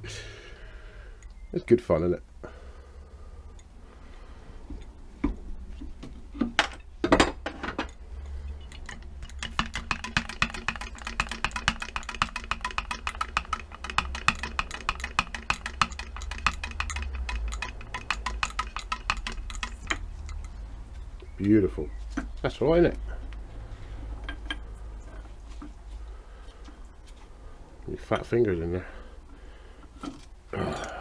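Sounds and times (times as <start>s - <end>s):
compressed air chattering leak: 8.6s - 20.6s.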